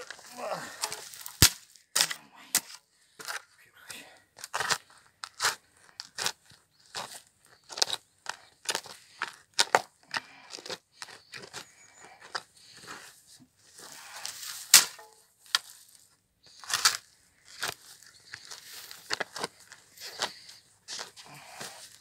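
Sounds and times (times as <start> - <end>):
spade crunching into soil: 0.0 - 3.5, 4.4 - 22.0.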